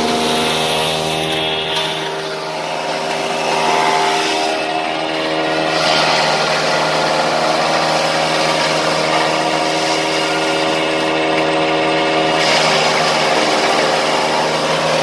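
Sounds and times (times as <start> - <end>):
engine and rotor hum: 0.0 - 15.0.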